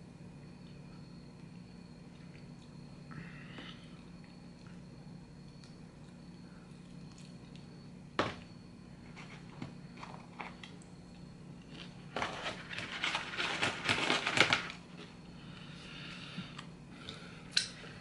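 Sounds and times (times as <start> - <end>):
packaging crackling and rustling: 12.1 - 15.1.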